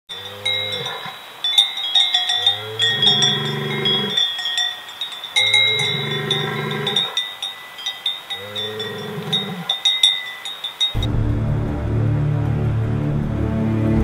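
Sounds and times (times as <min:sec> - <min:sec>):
bull bellowing: 0:00.1 - 0:11.1
cowbells clinking: 0:00.1 - 0:11.1.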